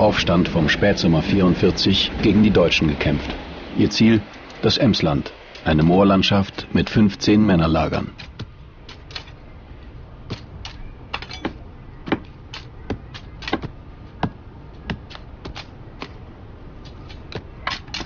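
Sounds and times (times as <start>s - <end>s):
steady low rumble: 0.0s - 18.0s
sharp irregular clicks and knocks: 7.8s - 9.4s, 10.3s - 16.2s, 16.8s - 18.0s.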